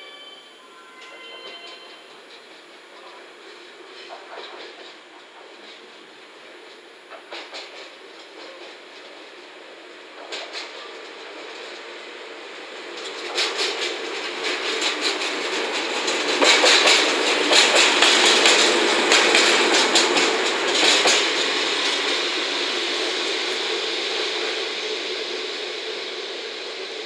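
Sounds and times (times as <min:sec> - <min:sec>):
diesel locomotive engine running: 0:01.5 - 0:27.0
wheels clicking over rail joints: 0:12.8 - 0:22.2.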